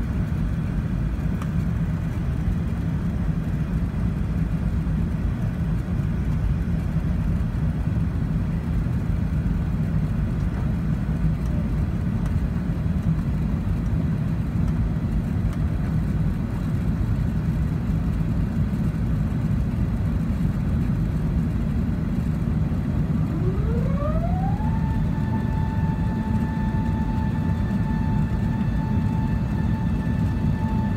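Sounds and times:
airplane cabin roar: 0:00.0 - 0:30.9
rising whine: 0:23.0 - 0:30.9.

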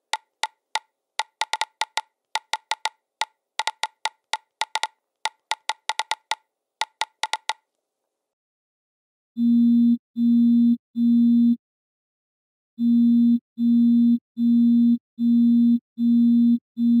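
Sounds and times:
phone buzzing: 0:00.1 - 0:03.0, 0:03.6 - 0:07.6.

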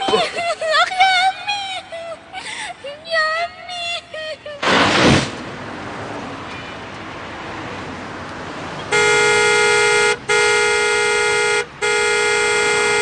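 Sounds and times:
car horn honking: 0:08.8 - 0:13.0.

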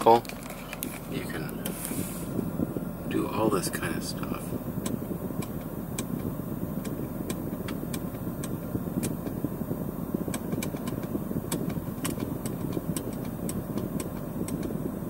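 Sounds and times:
low rumble in car cabin: 0:00.0 - 0:15.0
rotary controller clicks: 0:04.8 - 0:09.4, 0:10.2 - 0:14.9.

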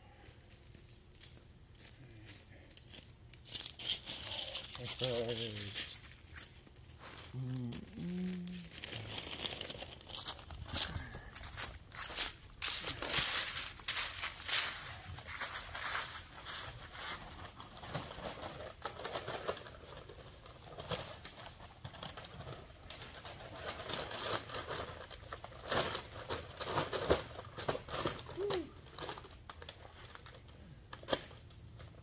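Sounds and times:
leaves and cardboard box rustling: 0:00.4 - 0:30.4
low cooing call: 0:07.4 - 0:08.8, 0:28.4 - 0:28.8.

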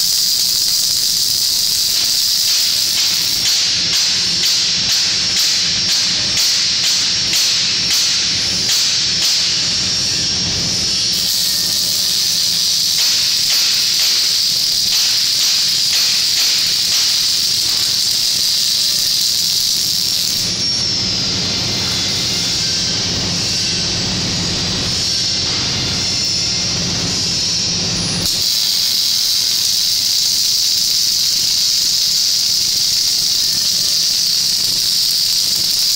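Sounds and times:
arc welding torch: 0:00.0 - 0:35.9.

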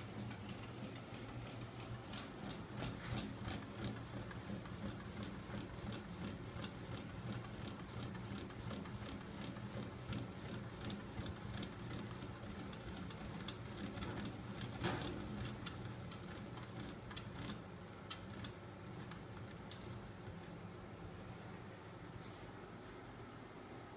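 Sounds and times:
rotor ticking: 0:02.4 - 0:21.0.

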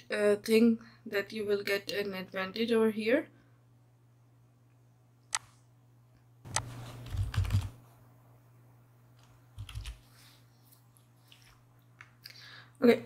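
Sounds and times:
steady low hum: 0:00.0 - 0:13.0
computer mouse and keyboard clicks: 0:09.2 - 0:10.0.

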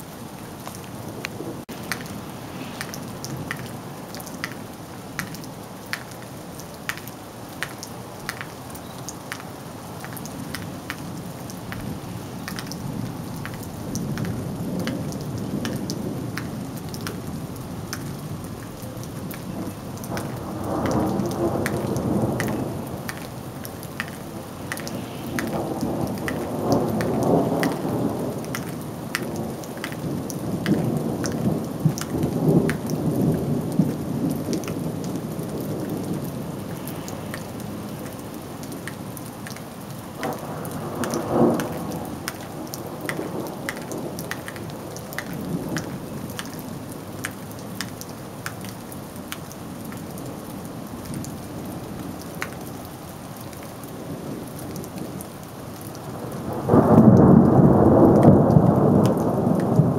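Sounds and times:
steady rain: 0:00.0 - 0:59.9
raindrops ticking: 0:00.3 - 0:59.9
thunder rolling: 0:24.6 - 0:28.4, 0:56.4 - 0:59.9.

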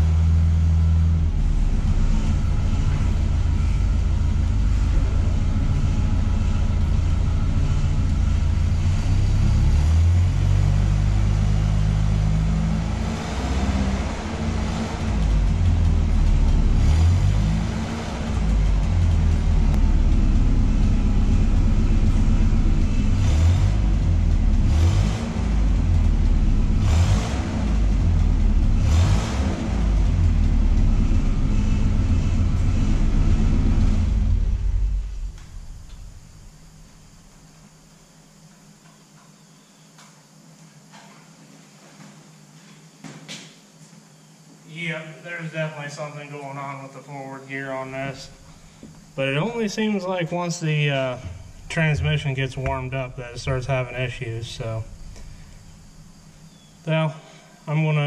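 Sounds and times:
forklift engine revving: 0:00.0 - 0:37.2, 0:47.7 - 0:58.0.

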